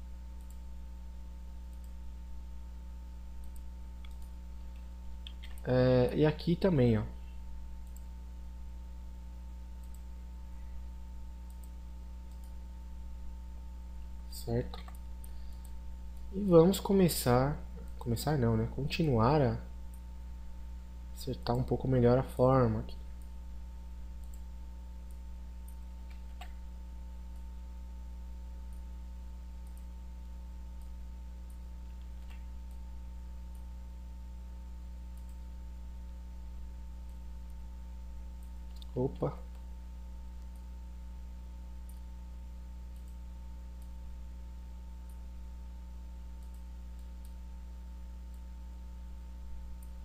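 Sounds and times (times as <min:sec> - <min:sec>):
low electrical hum: 0:00.0 - 0:50.0
computer mouse clicks: 0:00.4 - 0:00.6, 0:01.7 - 0:02.0, 0:03.4 - 0:05.7, 0:07.8 - 0:08.1, 0:09.8 - 0:10.1, 0:11.4 - 0:12.6, 0:24.2 - 0:26.6, 0:29.6 - 0:29.9, 0:30.8 - 0:32.9, 0:35.2 - 0:35.4, 0:42.9 - 0:44.0, 0:46.4 - 0:47.4.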